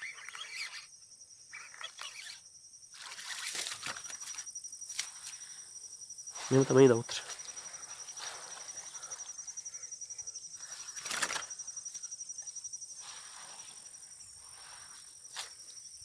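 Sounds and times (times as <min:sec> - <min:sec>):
insects trilling: 0:00.0 - 0:16.0
rustling through grass: 0:06.3 - 0:09.4, 0:12.9 - 0:15.8.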